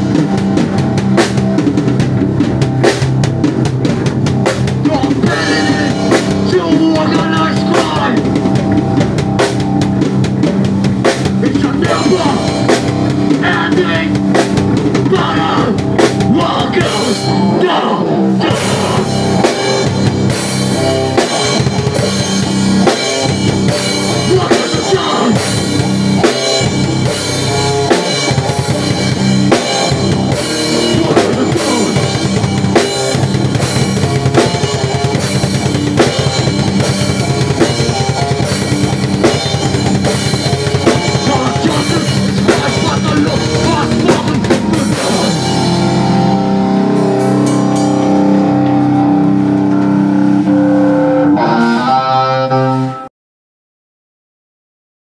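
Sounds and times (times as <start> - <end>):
live band playing: 0.0 - 53.1.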